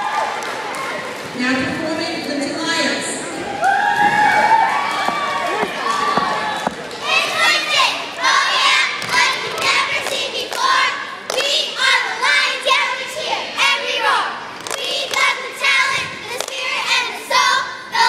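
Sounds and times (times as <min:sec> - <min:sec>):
girls chanting a cheer: 0:05.1 - 0:18.0
sharp claps: 0:09.0 - 0:11.6, 0:14.6 - 0:15.4, 0:16.3 - 0:16.7.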